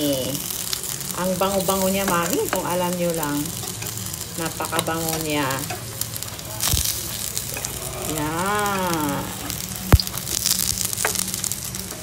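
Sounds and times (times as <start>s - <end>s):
batter sizzling in oil: 0.0s - 12.0s
person humming: 7.6s - 10.0s.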